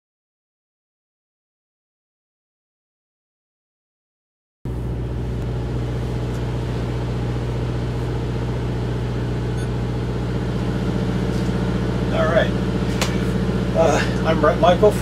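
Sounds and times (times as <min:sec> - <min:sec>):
bus machinery humming: 0:04.7 - 0:15.0.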